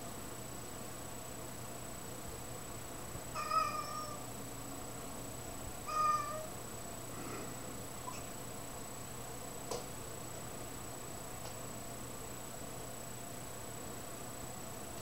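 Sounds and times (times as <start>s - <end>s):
cat meowing: 3.4s - 4.2s, 5.8s - 6.5s.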